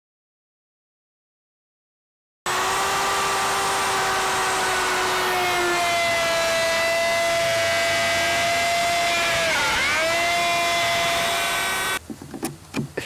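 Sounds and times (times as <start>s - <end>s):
router whining cutting wood: 2.5s - 12.0s.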